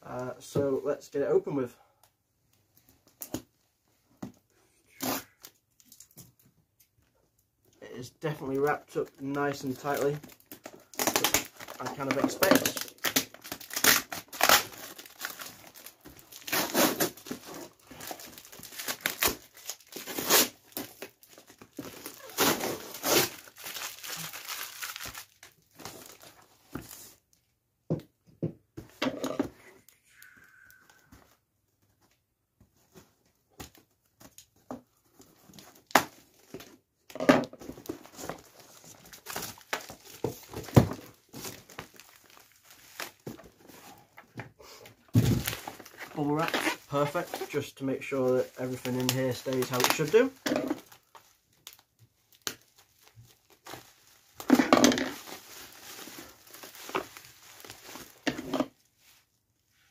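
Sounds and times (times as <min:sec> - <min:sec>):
bubble wrap rustling: 0:08.2 - 0:27.3, 0:37.6 - 0:44.2, 0:44.9 - 0:59.3
cardboard rustling and crinkling: 0:08.3 - 0:27.3, 0:37.5 - 0:59.3
packing tape ripping: 0:10.5 - 0:25.6.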